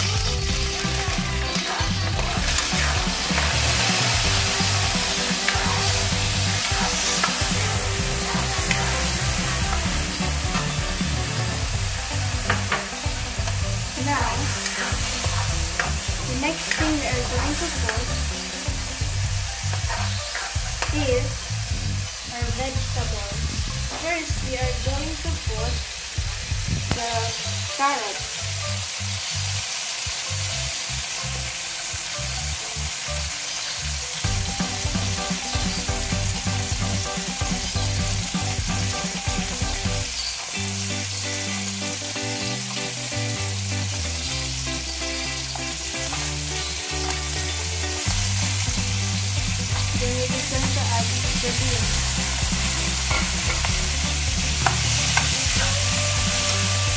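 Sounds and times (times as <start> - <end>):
wok sizzling: 0.0 - 56.9
spatula stirring in a wok: 0.1 - 21.6, 48.0 - 56.9.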